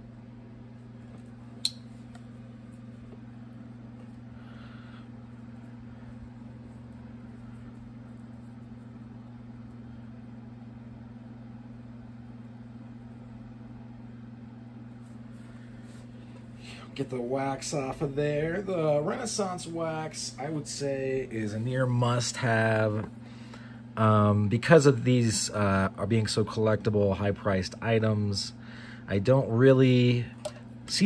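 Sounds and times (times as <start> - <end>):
steady low hum: 0.0 - 31.0
sharp click: 1.6 - 1.9.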